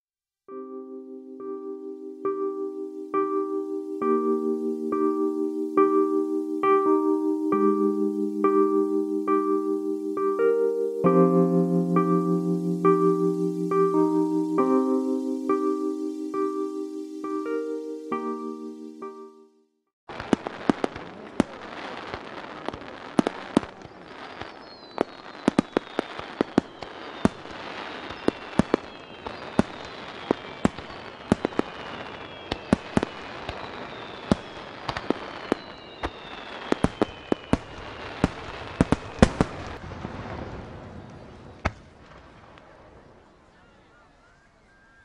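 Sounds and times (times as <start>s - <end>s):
fireworks crackle: 20.1s - 43.6s
fireworks bangs: 20.1s - 43.9s
falling whistles: 23.7s - 39.1s.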